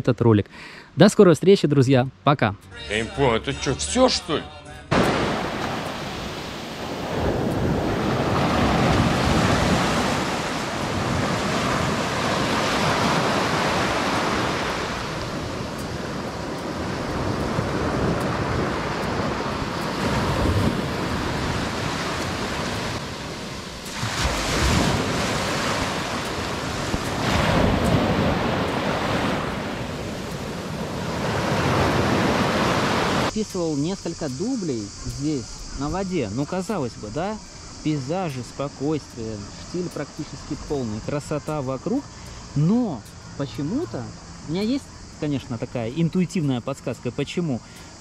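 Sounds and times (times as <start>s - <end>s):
wind buffeting microphone: 4.9s - 33.3s
rushing wind: 4.9s - 41.0s
water waves: 4.9s - 48.0s.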